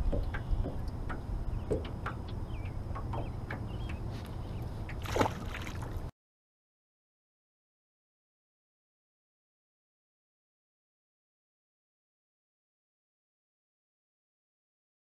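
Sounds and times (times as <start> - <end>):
small knocks on a boat: 0.0 - 6.1
water sloshing: 0.0 - 6.1
wind rumble on microphone: 0.0 - 6.1
water splash: 5.0 - 6.1.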